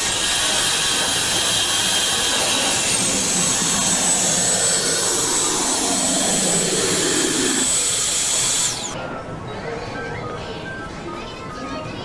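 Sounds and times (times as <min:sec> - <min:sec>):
vending machine mechanism whirring: 0:00.0 - 0:09.0.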